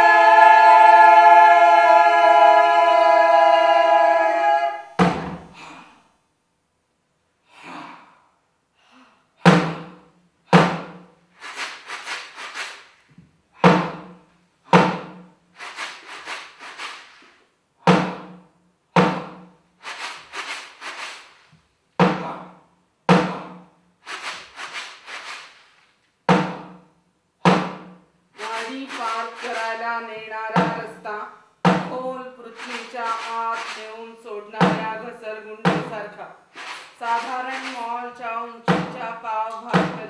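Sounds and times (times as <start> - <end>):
drum beaten with a stick: 4.8 - 5.6, 9.5 - 12.6, 13.6 - 17.1, 17.9 - 21.2, 22.0 - 25.2, 26.3 - 26.9, 27.5 - 31.0, 31.6 - 32.0, 34.6 - 40.0.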